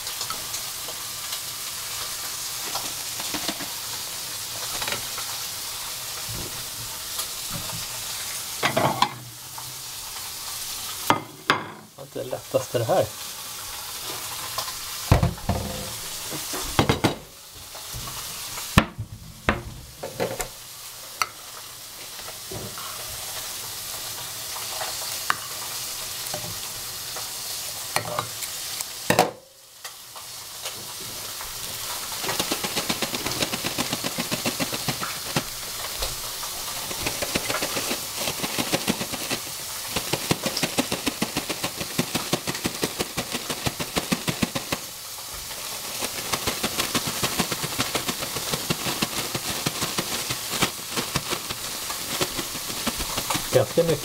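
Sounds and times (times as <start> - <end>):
steady hiss: 0.0 - 54.0
pot and plate clattering: 8.6 - 9.2, 11.1 - 11.9, 15.1 - 17.3
plastic bag crinkling: 31.5 - 54.0.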